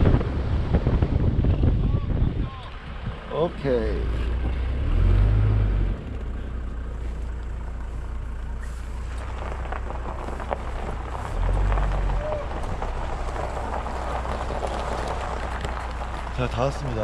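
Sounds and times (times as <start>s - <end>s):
car engine and road rumble: 0.0s - 17.0s.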